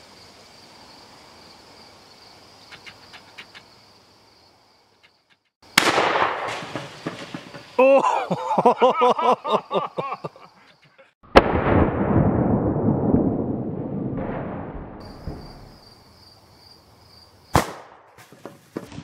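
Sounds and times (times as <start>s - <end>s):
shotgun shots: 5.8s - 7.6s, 17.5s - 18.1s.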